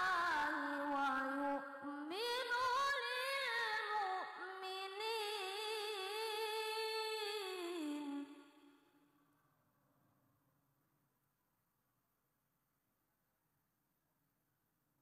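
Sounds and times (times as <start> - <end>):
boy reciting melodically into microphone: 0.0 - 8.2.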